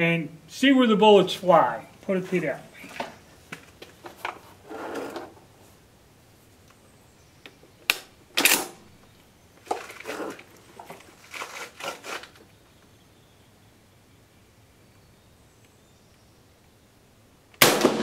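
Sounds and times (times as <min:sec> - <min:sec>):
rifle metal and wood clacks: 0:07.8 - 0:08.8.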